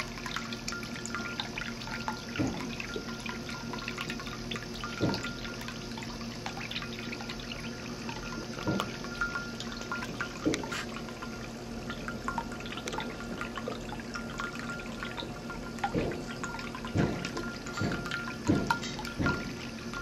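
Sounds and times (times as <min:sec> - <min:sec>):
water plops: 0:00.0 - 0:20.0
water trickling into a bowl: 0:00.0 - 0:20.0.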